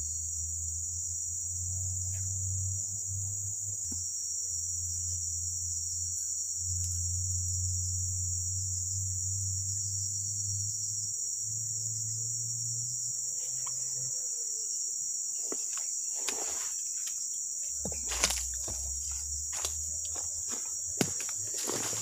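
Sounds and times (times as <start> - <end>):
forest insects droning: 0.0 - 22.0
rustling: 20.4 - 22.0.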